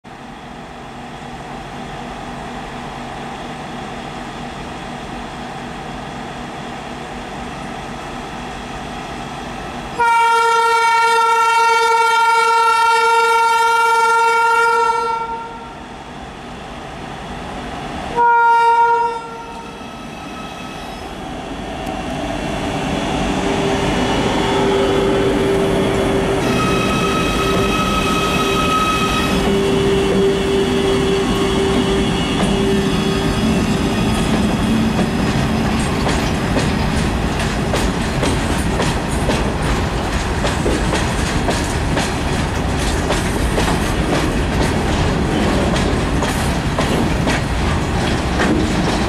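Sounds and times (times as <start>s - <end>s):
train horn blast: 10.0s - 15.7s, 18.2s - 21.0s, 24.6s - 34.3s
locomotive hum and rumble: 19.3s - 49.0s.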